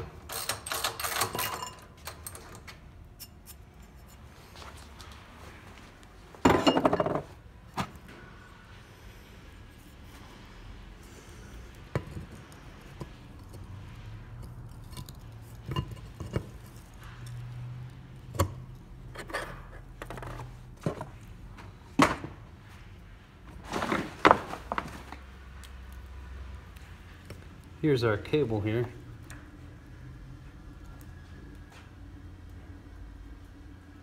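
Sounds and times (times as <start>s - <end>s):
metal parts clicking and clinking: 0.0s - 4.2s.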